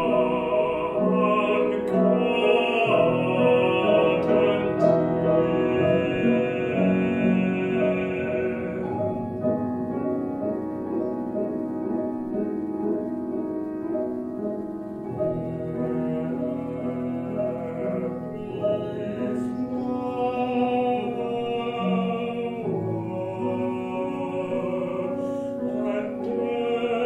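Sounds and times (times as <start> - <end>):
baritone operatic singing: 0.0 - 10.0, 15.1 - 27.0
grand piano accompaniment: 0.0 - 27.0.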